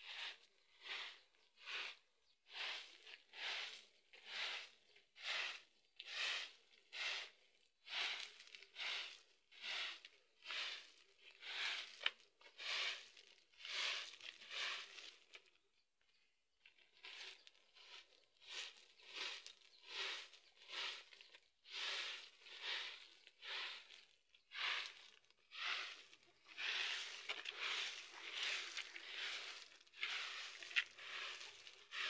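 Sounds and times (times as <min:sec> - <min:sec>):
leafy branches sweeping dirt: 0:17.0 - 0:32.0.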